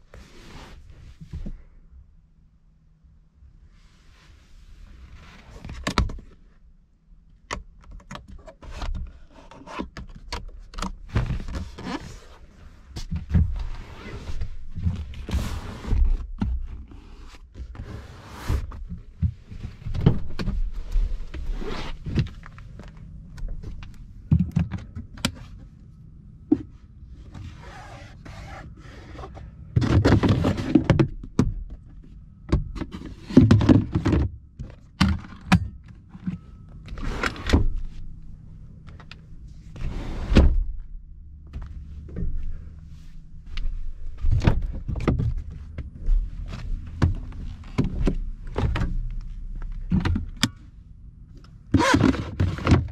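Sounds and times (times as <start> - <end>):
seat cushion rustling: 19.4 - 22.9, 27.3 - 29.1.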